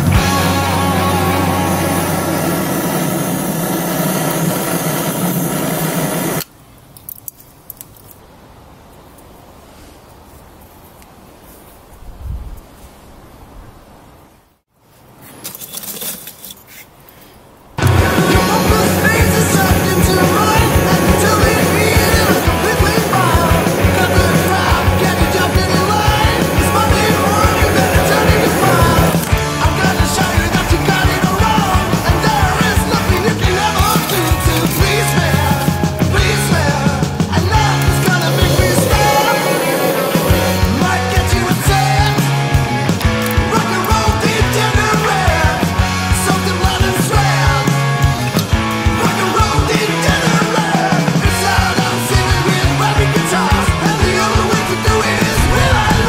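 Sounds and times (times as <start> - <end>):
rock backing music: 0.0 - 4.2, 17.8 - 56.0
electric charcoal lighter hissing: 0.2 - 6.5, 17.8 - 40.9
steady drum beat: 17.8 - 47.4, 48.0 - 56.0.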